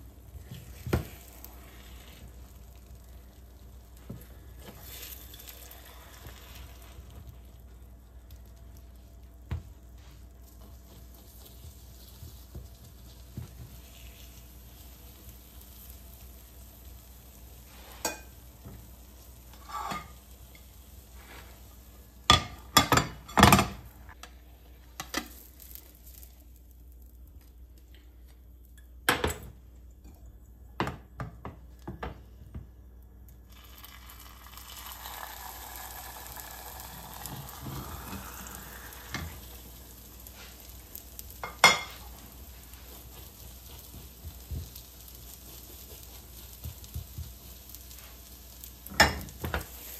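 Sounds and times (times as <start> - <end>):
food sizzling in hot oil: 0.0 - 24.1, 25.0 - 27.1, 33.4 - 49.9
utensils clinking against a pan: 18.0 - 18.4.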